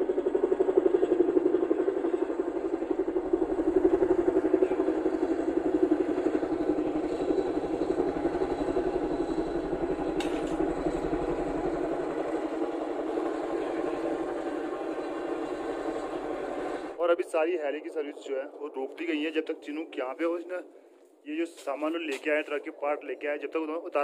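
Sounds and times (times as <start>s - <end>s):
helicopter rotors beating: 0.0s - 24.0s
sharp click: 10.2s - 10.6s.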